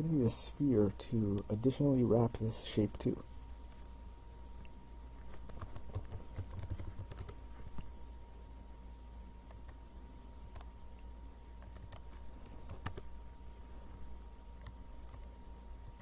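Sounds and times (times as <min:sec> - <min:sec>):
faint steady hum: 0:00.0 - 0:16.0
keyboard typing: 0:05.2 - 0:07.9, 0:11.6 - 0:13.1, 0:14.6 - 0:16.0
mouse clicks: 0:09.4 - 0:09.8, 0:10.4 - 0:11.0, 0:11.6 - 0:13.1, 0:14.6 - 0:16.0.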